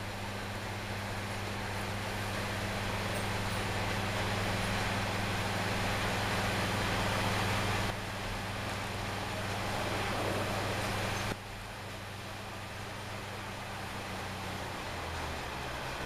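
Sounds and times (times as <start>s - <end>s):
train wheel and air noise: 0.0s - 16.0s.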